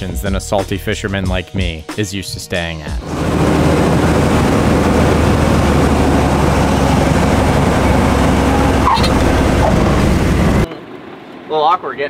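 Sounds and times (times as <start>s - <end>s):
light aircraft engine droning: 3.0s - 12.0s.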